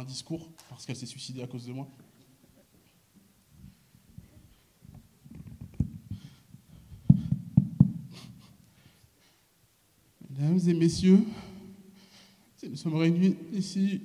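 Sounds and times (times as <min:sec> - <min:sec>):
sharp knocks on microphone: 0:07.1 - 0:08.1.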